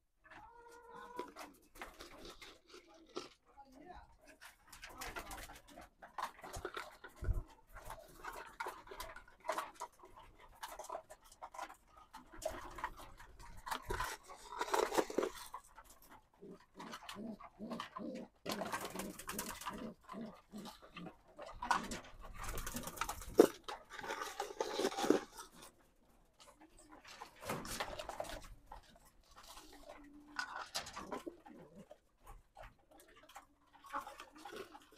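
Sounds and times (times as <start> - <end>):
pigeons cooing: 14.0 - 23.5, 29.4 - 33.5
wing flapping and rustling: 21.4 - 23.8.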